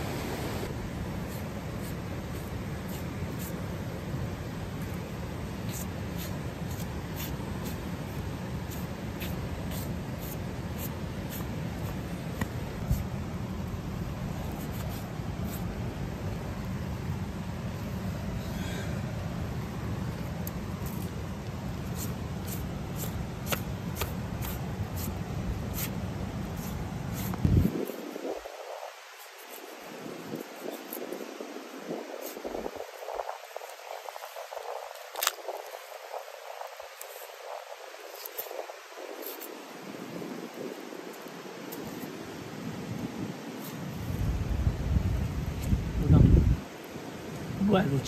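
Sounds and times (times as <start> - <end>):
steady low rumble: 0.0 - 28.9
knife scratching strokes: 1.2 - 3.7, 4.8 - 13.1, 14.3 - 15.8, 20.5 - 39.8
crisp tearing ticks: 34.9 - 35.9.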